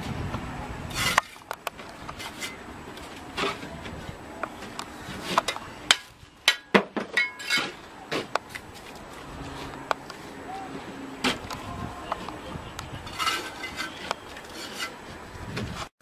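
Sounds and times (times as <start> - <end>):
bricks scraping: 0.9 - 4.1, 12.9 - 15.9.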